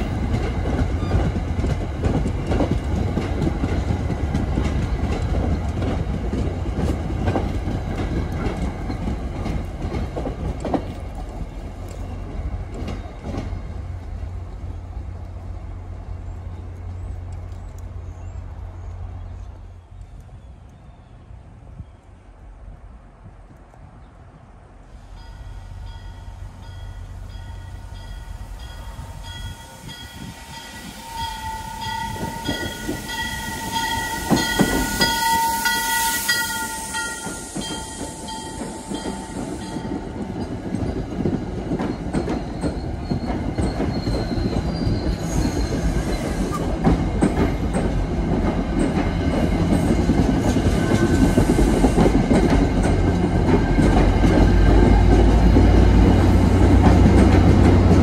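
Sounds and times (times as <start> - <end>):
train wheels clattering over rail joints: 0.0 - 13.9, 29.4 - 58.0
train horn: 28.9 - 39.0.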